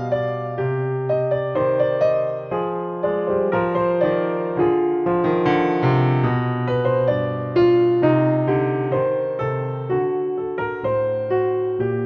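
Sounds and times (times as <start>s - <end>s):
calm piano melody: 0.0s - 12.0s.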